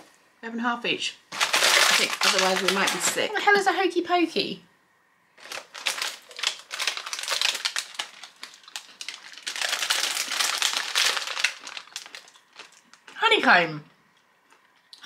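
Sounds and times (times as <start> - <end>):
snack wrapper crinkling: 1.3 - 3.3, 5.4 - 13.2.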